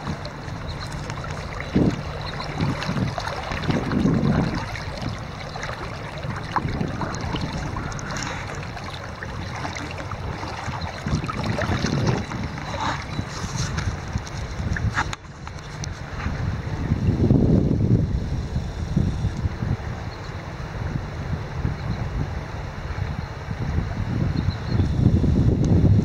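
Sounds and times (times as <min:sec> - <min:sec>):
river water over gravel: 0:00.0 - 0:21.4
wind buffeting microphone: 0:00.0 - 0:26.0.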